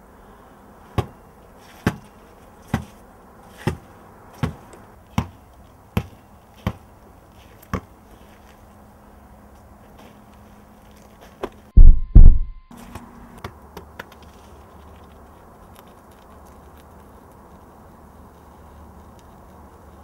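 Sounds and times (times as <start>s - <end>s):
ball bouncing on ground: 1.0s - 1.2s, 1.8s - 3.0s, 3.6s - 6.9s, 7.6s - 7.9s, 13.4s - 14.2s.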